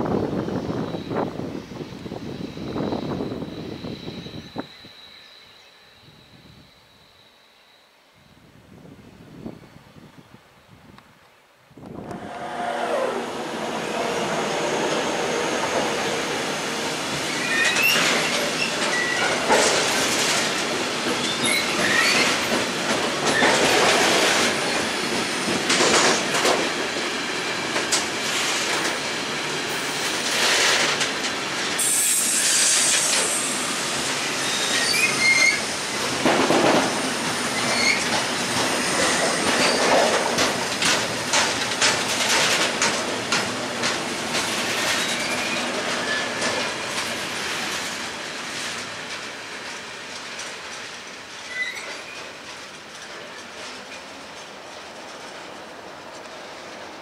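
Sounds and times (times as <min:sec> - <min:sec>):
freight train rolling past: 0:00.0 - 0:07.9, 0:11.8 - 0:57.0
high wheel squeals: 0:00.4 - 0:08.4, 0:12.2 - 0:19.4, 0:21.2 - 0:22.6, 0:31.8 - 0:35.7, 0:37.4 - 0:40.0, 0:44.8 - 0:46.4, 0:51.4 - 0:52.3
wheels clicking over rail joints: 0:36.0 - 0:57.0.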